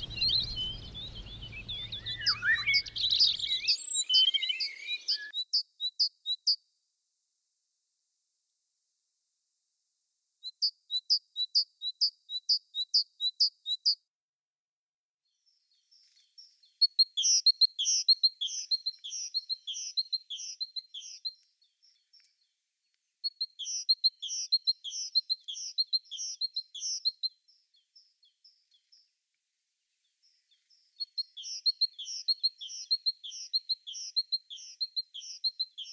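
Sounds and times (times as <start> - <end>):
songbirds singing: 0.0 - 6.5, 15.3 - 29.2, 30.0 - 35.9.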